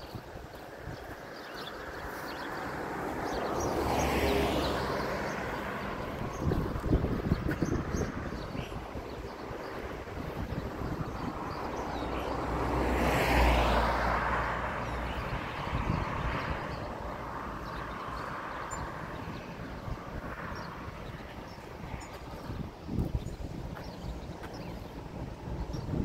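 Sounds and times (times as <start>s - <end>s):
vehicle driving past: 2.5s - 7.2s, 11.6s - 19.2s.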